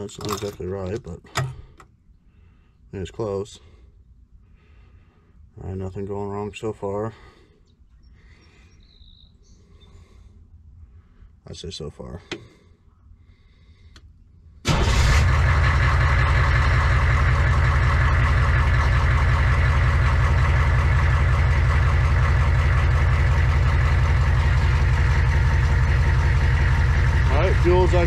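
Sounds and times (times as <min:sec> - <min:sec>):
engine starting and idling: 0:00.0 - 0:01.9, 0:14.6 - 0:28.0.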